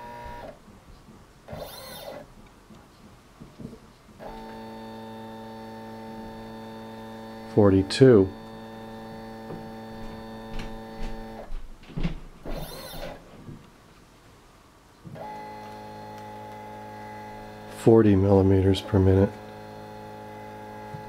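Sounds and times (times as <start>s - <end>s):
stepper motor hum: 0.0s - 0.6s, 1.5s - 2.3s, 4.2s - 11.5s, 12.4s - 13.2s, 15.2s - 21.0s.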